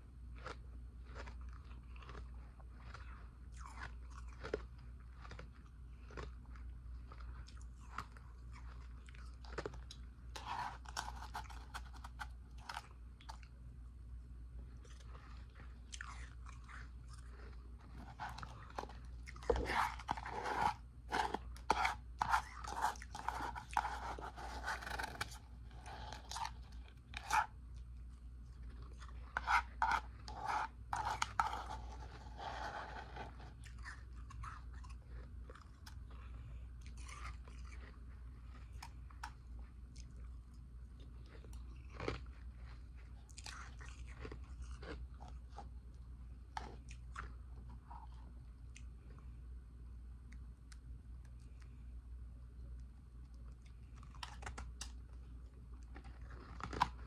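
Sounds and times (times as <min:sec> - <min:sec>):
ice crunching between teeth: 0:55.8 - 0:57.0.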